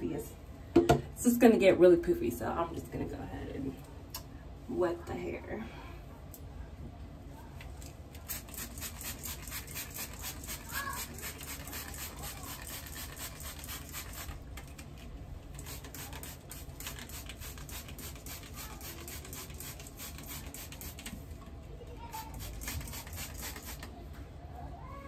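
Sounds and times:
spray bottle spraying: 8.2 - 14.8, 15.6 - 21.2, 22.2 - 23.9.

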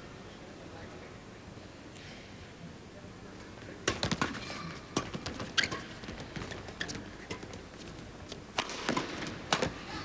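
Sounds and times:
shoes squeaking on court: 5.0 - 8.4
racket striking shuttlecock: 8.6 - 9.8.

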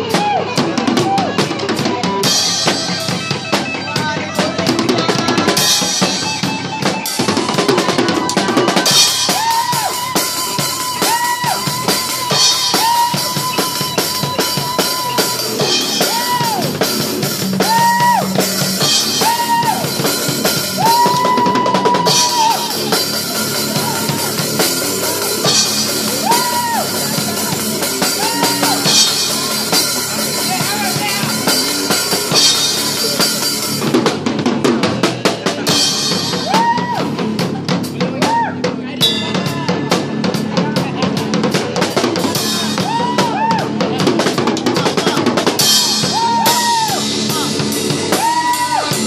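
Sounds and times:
bass guitar: 0.0 - 49.0
drum kit played busily: 0.0 - 49.0
electric guitar: 0.0 - 49.0
long held high notes: 5.2 - 33.8.

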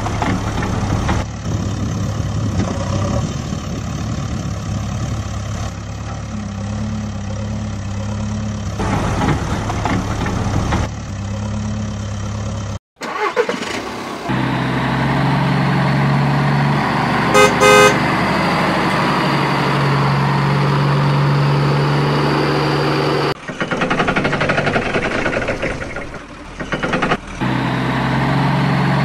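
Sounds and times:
truck engine running: 0.0 - 29.0
truck horn honks: 17.3 - 18.2.

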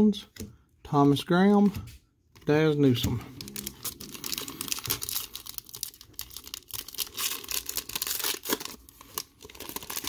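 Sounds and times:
cellophane wrapper tearing and crinkling: 3.3 - 10.0.

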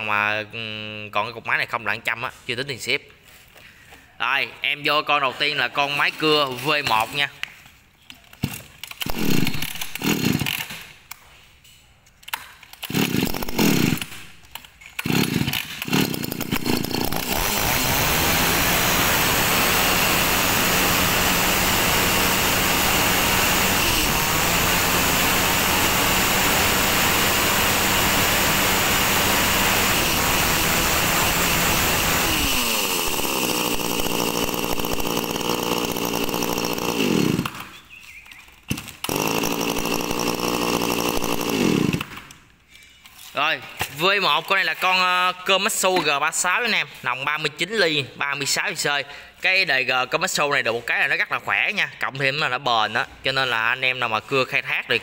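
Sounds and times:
starter cord pulls: 6.0 - 11.2, 12.1 - 42.4
chainsaw engine running: 8.4 - 10.9, 12.8 - 37.8, 38.7 - 42.4.

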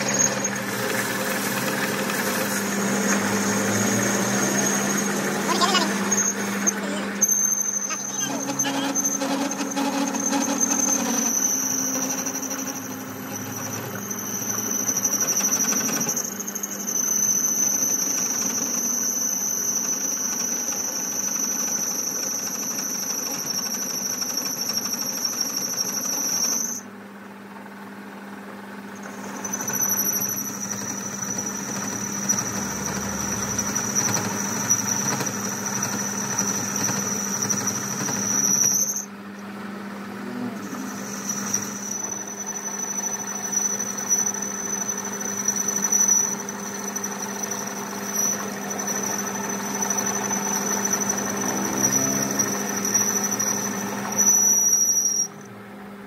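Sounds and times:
machine high-pitched squeal: 0.0 - 27.0, 28.6 - 55.5
machine low hum: 39.0 - 54.1.

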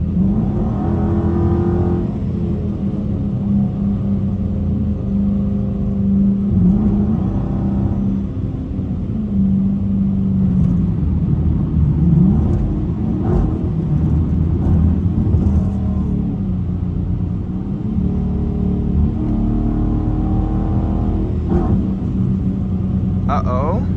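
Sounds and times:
car engine drone: 0.0 - 23.9
road noise on wet pavement: 7.6 - 23.9.

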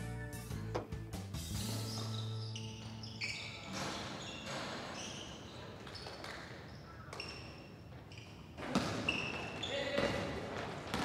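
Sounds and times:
sneakers squeaking: 0.6 - 11.0
basketball bouncing: 8.6 - 11.0.

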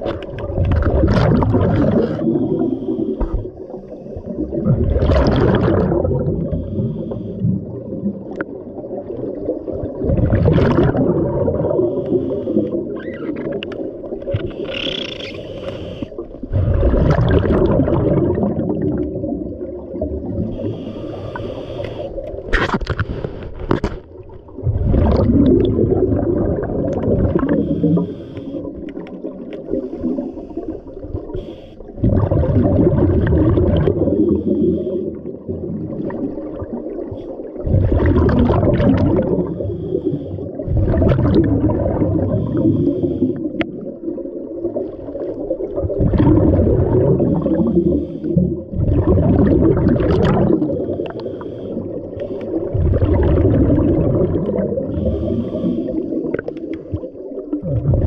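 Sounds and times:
bubbling exhalations underwater: 0.0 - 3.6, 4.2 - 15.4, 16.1 - 21.4, 24.5 - 30.2, 31.0 - 58.0
regulator inhales: 2.6 - 4.3, 6.5 - 7.5, 11.9 - 12.8, 14.4 - 16.2, 20.5 - 22.2, 27.5 - 28.8, 29.7 - 31.9, 34.1 - 35.2, 39.5 - 40.5, 42.3 - 43.5, 47.4 - 48.4, 50.9 - 52.6, 54.9 - 56.2.

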